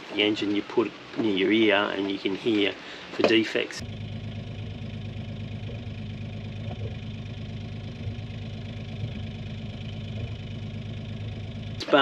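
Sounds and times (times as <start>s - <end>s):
boat engine idling: 3.8s - 12.0s.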